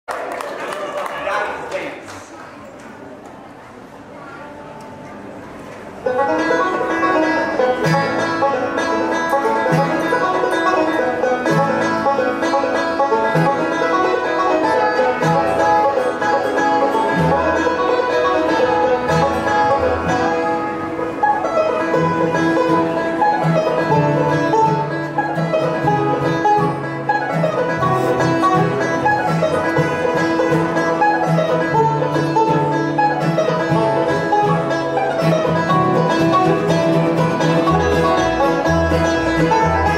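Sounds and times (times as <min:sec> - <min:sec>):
mandolin: 0:03.4 - 0:39.9
acoustic guitar: 0:04.1 - 0:39.9
fiddle: 0:04.8 - 0:39.9
banjo rolls: 0:05.0 - 0:39.9
upright bass line: 0:14.7 - 0:39.9.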